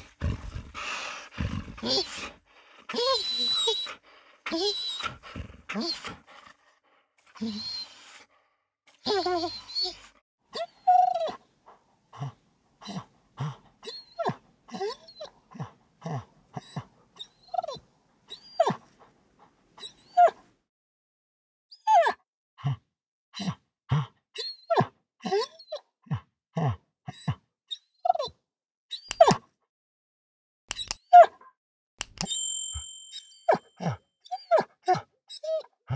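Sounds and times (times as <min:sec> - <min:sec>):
dog grunting: 0:00.0 - 0:07.7, 0:11.1 - 0:17.0
dog panting: 0:00.0 - 0:08.5, 0:18.3 - 0:20.1
dog whining: 0:01.7 - 0:02.3, 0:02.9 - 0:06.3, 0:07.3 - 0:08.2, 0:09.0 - 0:11.5, 0:13.8 - 0:19.0, 0:19.8 - 0:20.4, 0:24.4 - 0:25.8, 0:27.1 - 0:28.3, 0:33.2 - 0:35.9.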